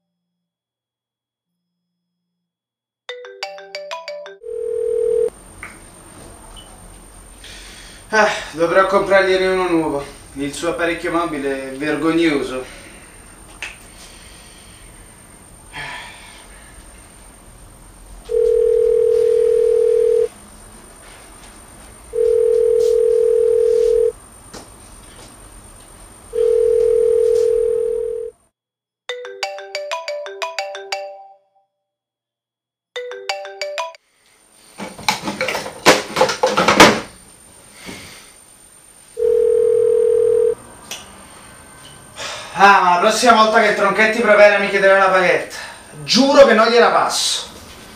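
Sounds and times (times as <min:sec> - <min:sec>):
mobile phone melodic ringtone: 0:03.1 - 0:05.3, 0:18.3 - 0:20.3, 0:22.2 - 0:24.1, 0:26.4 - 0:28.3, 0:29.1 - 0:31.6, 0:33.0 - 0:34.0, 0:39.2 - 0:40.6
telephone ringback tone: 0:03.1 - 0:05.3, 0:18.2 - 0:20.3, 0:22.2 - 0:24.1, 0:26.4 - 0:28.4, 0:33.0 - 0:34.0, 0:39.2 - 0:40.6.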